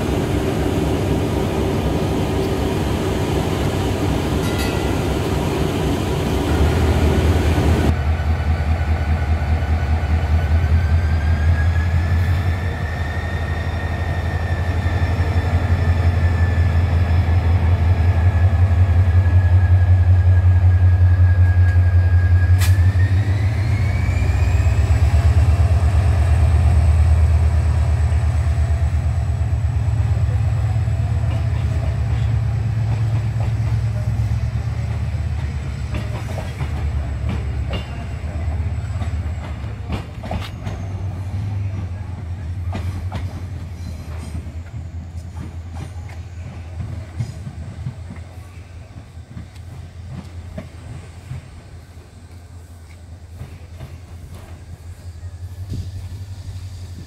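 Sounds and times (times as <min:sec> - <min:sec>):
high engine whine: 0:00.0 - 0:08.0
diesel locomotive engine drone: 0:00.0 - 0:57.0.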